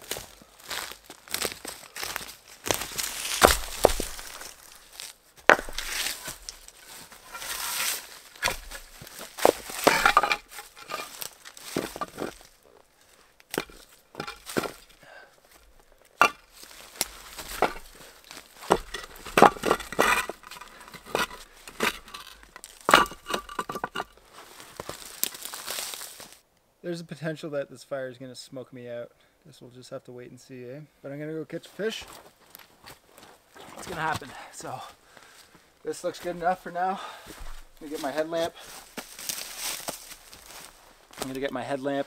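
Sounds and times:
dry leaves crunching underfoot: 0.0s - 26.4s, 37.6s - 41.5s
stones clacking together: 3.0s - 12.5s, 13.4s - 15.0s, 15.6s - 24.2s.

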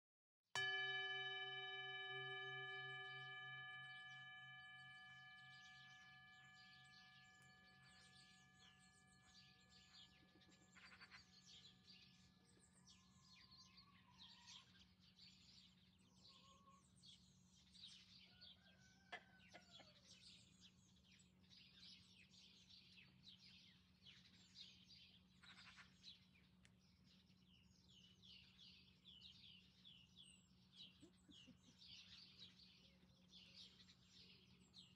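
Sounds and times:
singing bowl ringing: 0.6s - 14.6s
small birds chirping: 3.2s - 17.7s.

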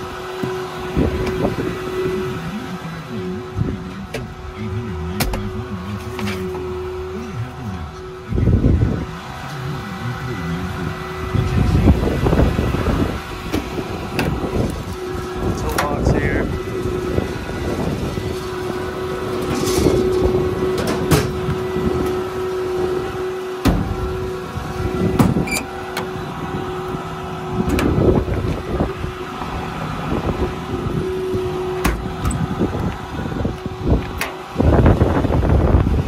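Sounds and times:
steady mechanical hum: 0.0s - 36.0s
metal doors and latches clunking: 5.2s - 6.7s, 18.5s - 22.2s, 25.1s - 26.2s, 31.7s - 34.5s
wind on microphone: 10.8s - 20.6s, 27.6s - 36.0s.

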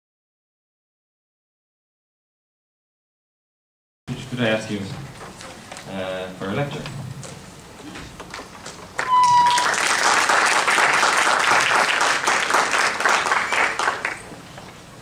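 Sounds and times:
audience applauding: 8.3s - 14.3s
steady high tone: 9.0s - 9.8s.

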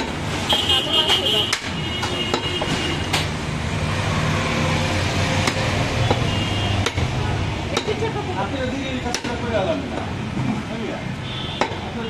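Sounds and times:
cleaver chopping on wooden block: 5.4s - 7.1s.

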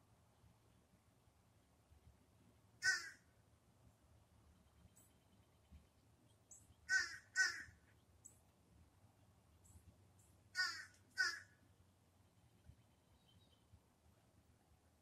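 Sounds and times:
cat making caw-like calls: 2.8s - 3.2s, 6.9s - 7.7s, 10.6s - 11.5s.

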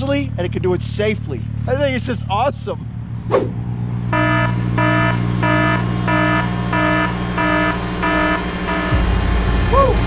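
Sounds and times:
tractor engine running: 0.0s - 10.0s
electronic warning beeper: 4.1s - 9.1s.

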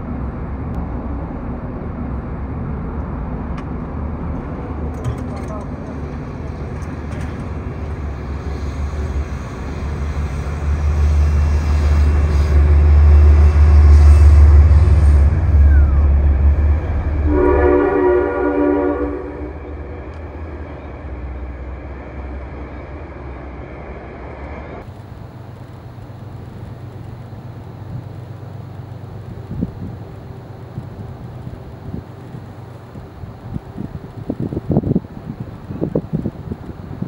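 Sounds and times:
train rumbling past: 0.0s - 37.0s
train horn chord: 16.9s - 20.0s.

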